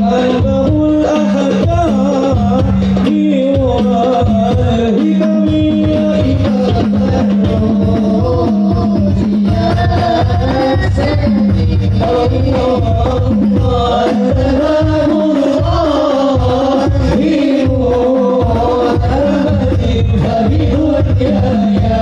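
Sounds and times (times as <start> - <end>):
frame drums beating: 0.0 - 22.0
men singing devotional song: 0.0 - 22.0.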